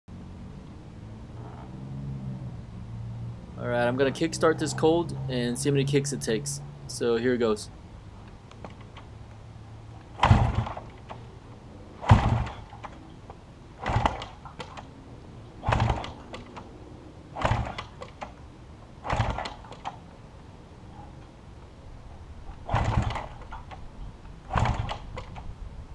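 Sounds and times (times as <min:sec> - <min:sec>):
motorcycle kick-starter clatter: 0:08.5 - 0:09.1, 0:10.1 - 0:11.3, 0:12.0 - 0:13.1, 0:13.8 - 0:14.9, 0:15.6 - 0:16.7, 0:17.4 - 0:18.4, 0:19.0 - 0:20.1, 0:22.5 - 0:23.9, 0:24.5 - 0:25.5.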